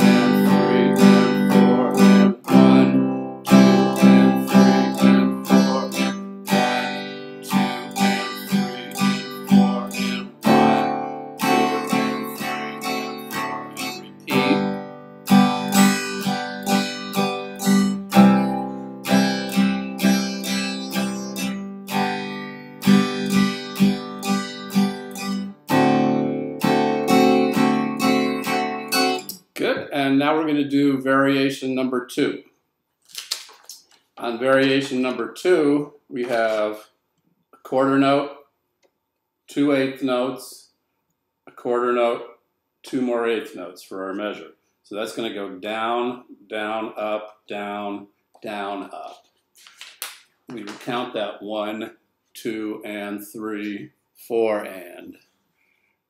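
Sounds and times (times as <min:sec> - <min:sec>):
acoustic guitar strumming: 0:00.0 - 0:29.4.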